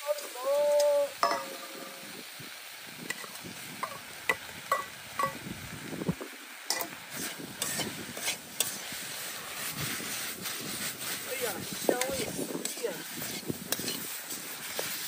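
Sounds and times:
food sizzling in frying pan: 0:00.0 - 0:15.0
spatula scraping pan: 0:06.7 - 0:15.0.

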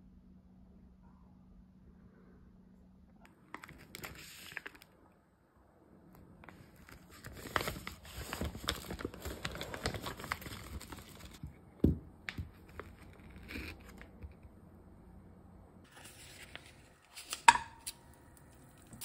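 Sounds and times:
plastic pouch crinkling: 0:03.3 - 0:05.0, 0:06.4 - 0:11.4.

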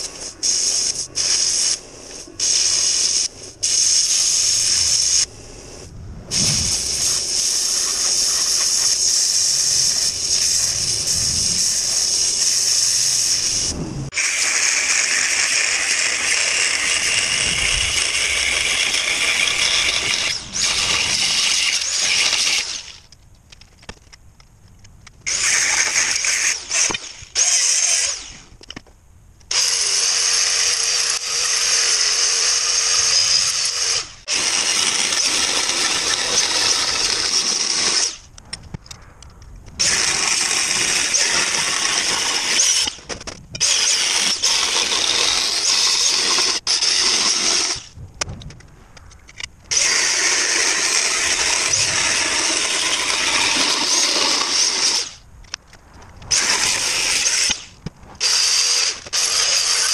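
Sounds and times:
angle grinder grinding steel: 0:06.3 - 0:23.0, 0:25.3 - 0:28.5, 0:29.5 - 0:38.2, 0:39.8 - 0:47.8, 0:49.7 - 0:55.2, 0:56.3 - 0:59.9.

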